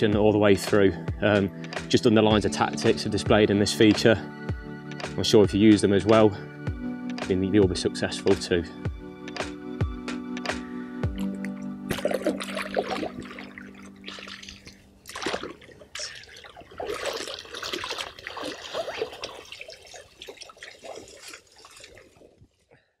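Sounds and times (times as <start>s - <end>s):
background music: 0.0s - 15.6s
water splashing around wader: 10.5s - 22.9s
hands sweeping through water: 11.1s - 22.6s.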